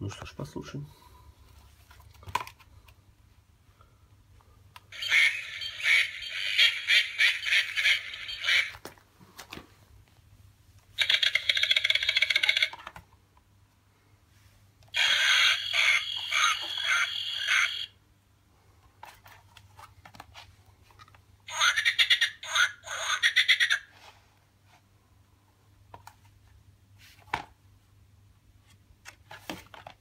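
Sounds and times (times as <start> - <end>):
recorded animal calls from speaker: 5.0 - 8.8, 15.0 - 17.9, 21.5 - 24.0.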